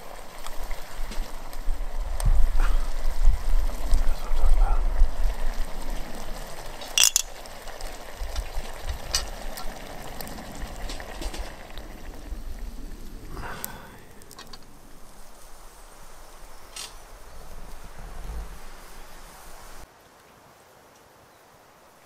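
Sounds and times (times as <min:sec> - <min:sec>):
pot of food bubbling: 0:00.0 - 0:16.3
sharp clicks: 0:07.0 - 0:07.3.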